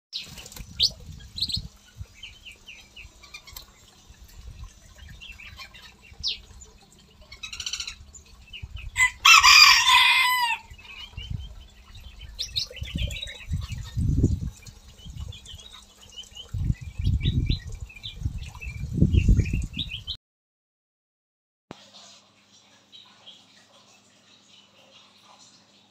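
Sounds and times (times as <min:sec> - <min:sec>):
songbirds chirping and whistling: 0:00.2 - 0:20.2.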